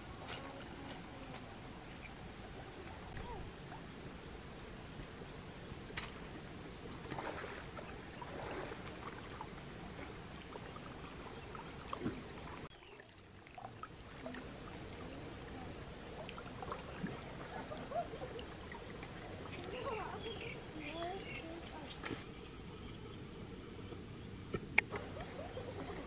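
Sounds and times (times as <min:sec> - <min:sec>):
water trickling: 0:06.8 - 0:26.0.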